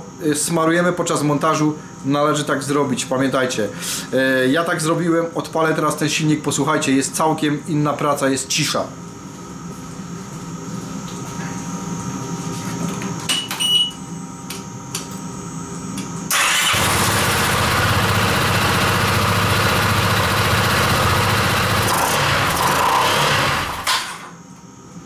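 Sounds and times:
scooter engine starting and running: 0:16.3 - 0:24.2.

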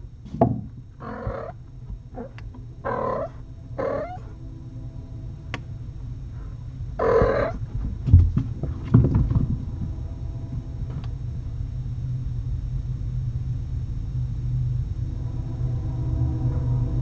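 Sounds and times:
steady low hum: 0:00.0 - 0:17.0
cat meowing: 0:01.0 - 0:01.6, 0:02.2 - 0:04.3, 0:07.0 - 0:07.6
dull thumps: 0:07.0 - 0:10.0.

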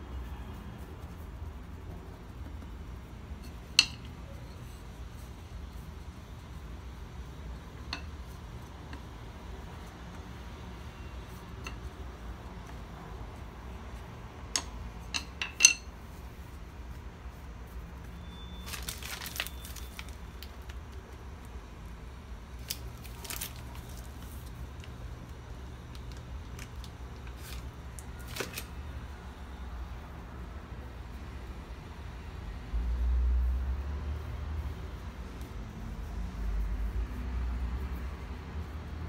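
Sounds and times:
plastic piping bag crinkling: 0:18.5 - 0:21.1, 0:22.5 - 0:25.0, 0:25.8 - 0:28.8.

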